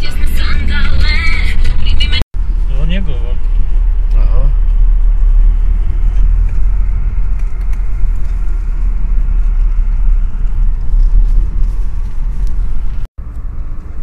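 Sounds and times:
car engine and tyres on snow: 0.0s - 14.0s.

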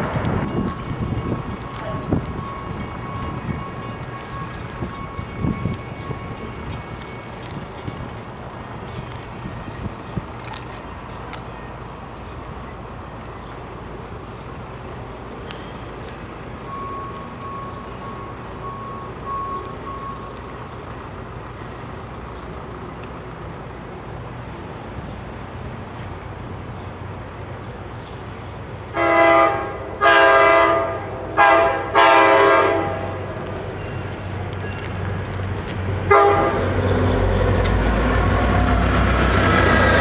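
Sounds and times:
diesel locomotive rumble: 0.0s - 40.0s
diesel locomotive horn blasts: 28.9s - 33.3s, 36.1s - 38.9s.

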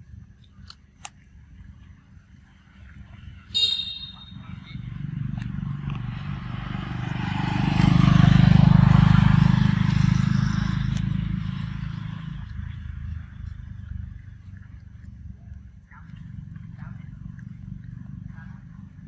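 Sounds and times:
vehicle engine passing by: 3.3s - 19.0s.

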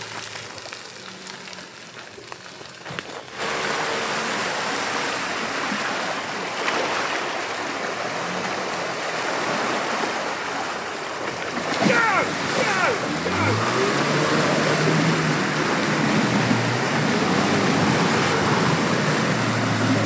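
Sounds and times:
faint engine hum: 0.0s - 20.0s
tyres churning through mud and water: 0.0s - 20.0s.

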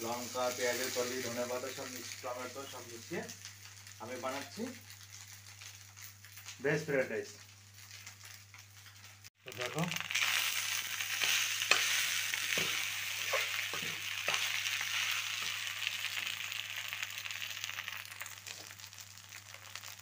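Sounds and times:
rice sizzling in a pan: 0.0s - 20.0s
spatula knocking and scraping pan: 11.2s - 15.6s.

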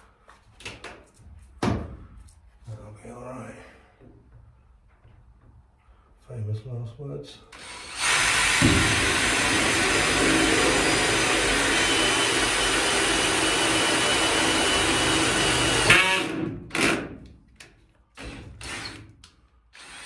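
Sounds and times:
cordless drill running under load: 7.5s - 17.0s, 18.2s - 19.0s, 19.7s - 20.0s.

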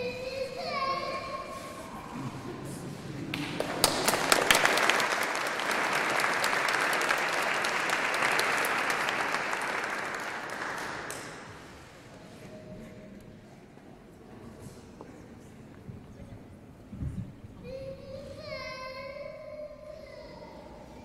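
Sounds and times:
audience applauding: 3.2s - 11.8s.

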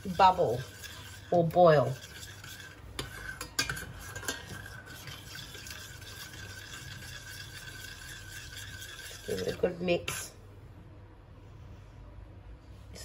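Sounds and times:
spoon clinking against a pan: 2.0s - 4.6s.

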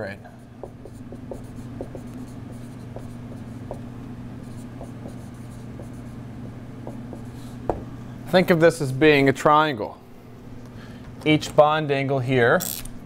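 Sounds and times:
steady low hum: 0.0s - 13.0s
marker scratching on whiteboard: 0.5s - 6.2s, 6.8s - 7.6s
marker tip tapping whiteboard: 0.6s - 2.2s.

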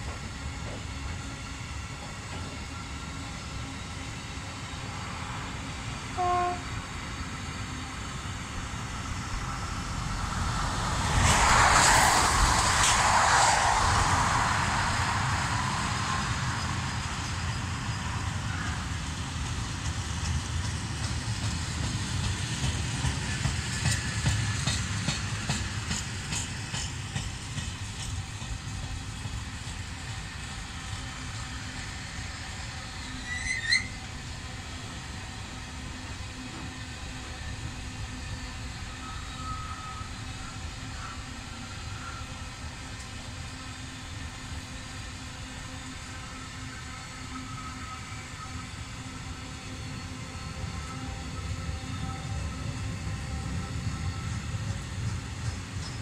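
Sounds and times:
freight train wheels rumbling: 0.0s - 56.0s
passing train rush: 0.0s - 56.0s
train horn toot: 6.0s - 6.9s, 39.0s - 41.1s.

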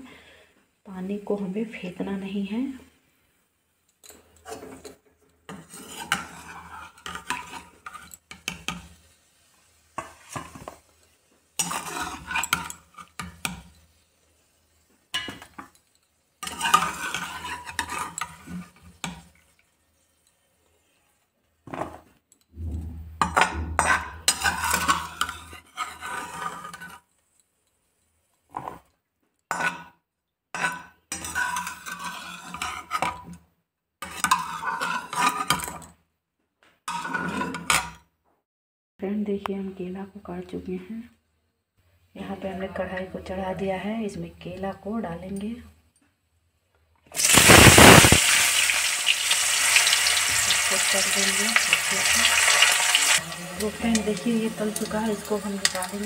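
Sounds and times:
metal skimmer scraping a pot: 16.4s - 18.8s, 23.3s - 27.0s, 31.1s - 33.2s, 34.0s - 35.8s, 36.9s - 37.9s.

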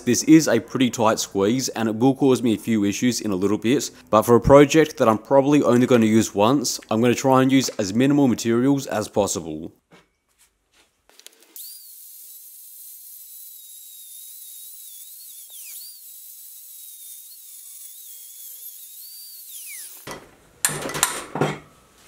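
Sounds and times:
angle grinder cutting steel: 11.6s - 20.2s.

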